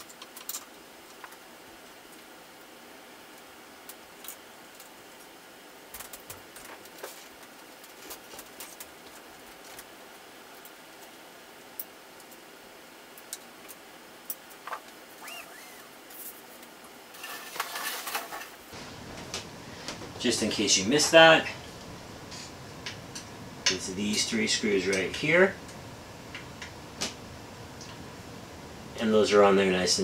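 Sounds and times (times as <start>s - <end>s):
brief squeak: 15.2s - 15.9s
rattle of handling: 17.1s - 18.6s.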